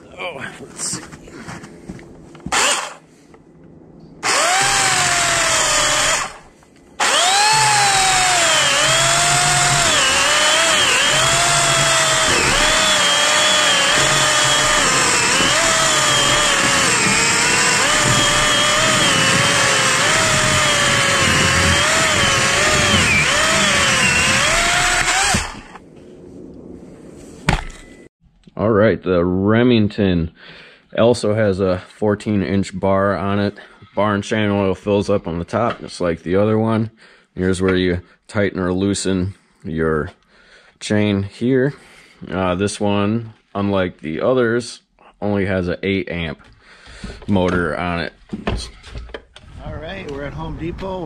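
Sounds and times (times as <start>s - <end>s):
electric chainsaw cutting log: 2.5s - 3.0s, 4.2s - 25.8s.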